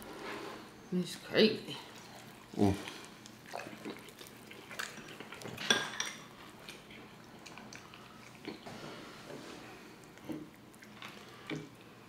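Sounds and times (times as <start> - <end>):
people chewing crispy food: 1.9 - 5.7, 6.3 - 8.7, 9.8 - 12.0.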